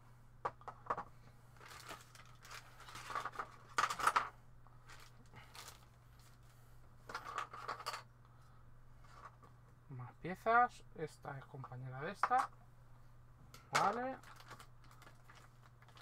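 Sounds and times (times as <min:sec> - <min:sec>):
faint low hum: 0:00.0 - 0:16.0
plastic bag rustling: 0:01.5 - 0:06.6, 0:13.8 - 0:16.0.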